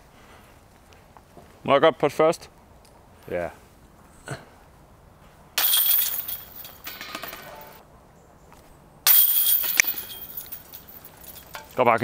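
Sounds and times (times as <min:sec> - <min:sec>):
discs hitting basket chains: 0:05.6 - 0:07.8, 0:09.1 - 0:11.8.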